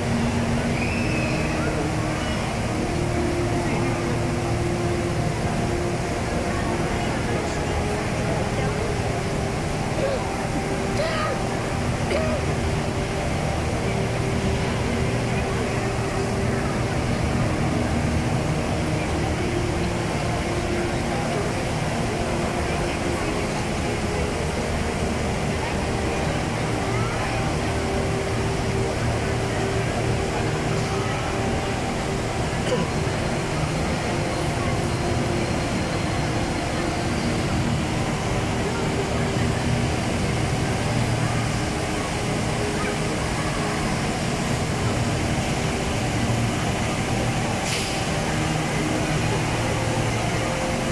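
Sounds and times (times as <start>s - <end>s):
indoor waterfall rushing: 0.0s - 50.9s
brief hiss: 47.6s - 48.1s.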